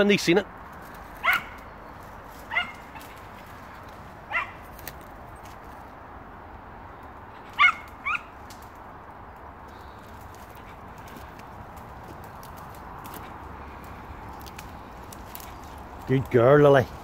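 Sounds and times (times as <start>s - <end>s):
twigs snapping in undergrowth: 0.6s - 5.9s, 7.0s - 17.0s
dog yelping: 1.2s - 1.6s, 2.5s - 3.2s, 4.3s - 4.6s, 7.5s - 8.3s.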